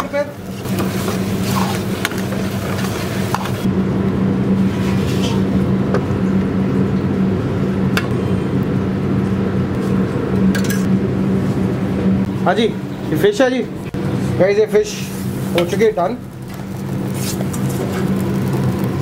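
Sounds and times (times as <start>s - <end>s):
kitchen machinery hum: 0.0s - 19.0s
gravy sizzling in a pan: 14.9s - 19.0s.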